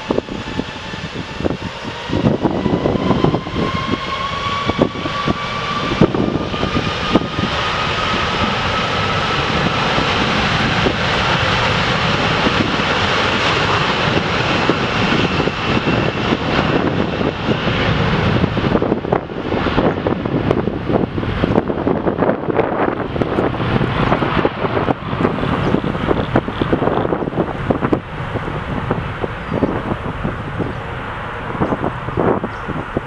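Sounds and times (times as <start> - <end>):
jet engine whine rising: 0.0 - 33.0
jet engines roaring: 0.0 - 33.0.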